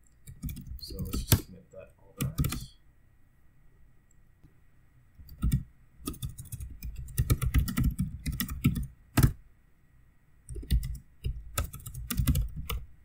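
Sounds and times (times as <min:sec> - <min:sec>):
typing on computer keyboard: 0:00.2 - 0:01.4, 0:02.2 - 0:02.6, 0:05.2 - 0:09.4, 0:10.5 - 0:12.8.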